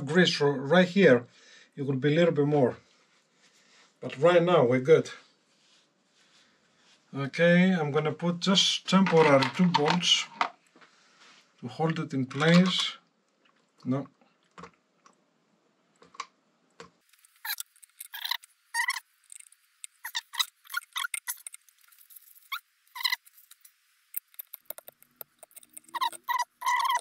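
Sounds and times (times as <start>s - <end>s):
metal parts squeaking and clicking: 17.2s - 27.0s.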